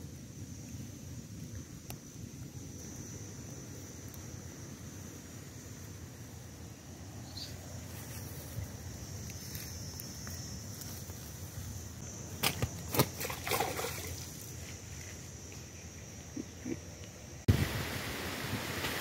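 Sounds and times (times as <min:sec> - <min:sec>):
fish splashing in water: 0:12.4 - 0:14.4.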